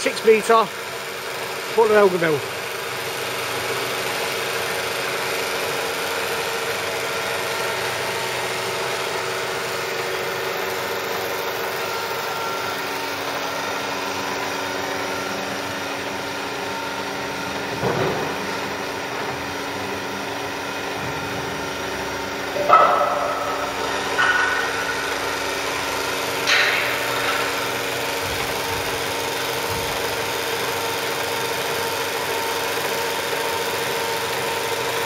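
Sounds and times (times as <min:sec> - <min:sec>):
milling machine humming: 0:00.0 - 0:35.0
short loud machine noise: 0:07.4 - 0:30.3.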